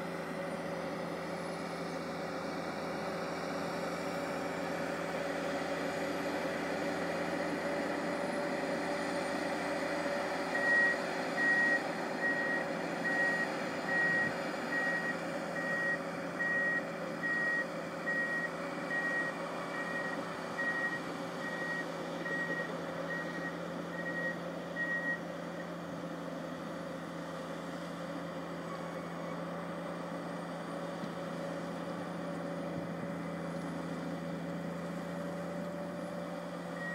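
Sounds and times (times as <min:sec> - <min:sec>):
diesel engine running: 0:00.0 - 0:36.9
reversing alarm beeping: 0:10.5 - 0:25.2.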